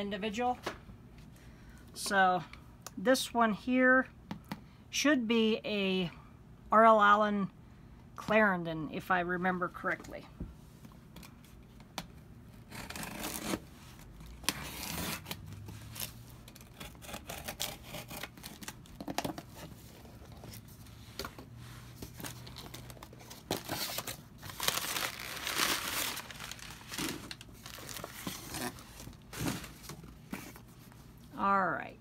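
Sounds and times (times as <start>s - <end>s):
tape tearing: 12.6s - 19.8s, 22.0s - 30.6s
box cutter slitting cardboard: 12.7s - 13.6s
packing paper crinkling: 22.0s - 30.2s.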